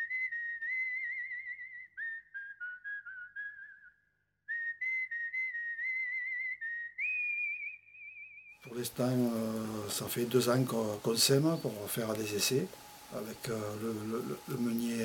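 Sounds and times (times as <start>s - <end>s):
person whistling a tune: 0.0s - 8.5s.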